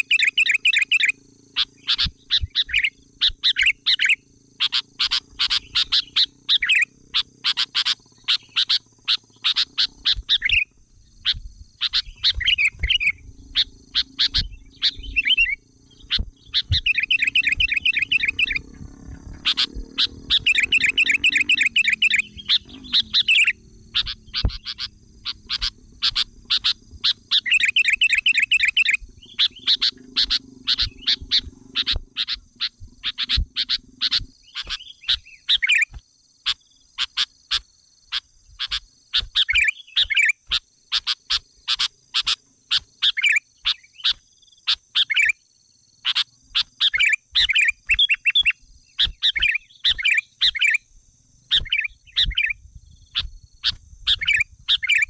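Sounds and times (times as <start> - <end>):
small birds chirping and trilling: 0.0 - 55.0.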